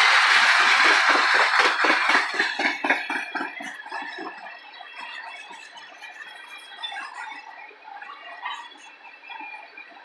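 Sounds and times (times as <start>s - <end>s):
train wheels squeaking and clicking: 0.3s - 7.6s.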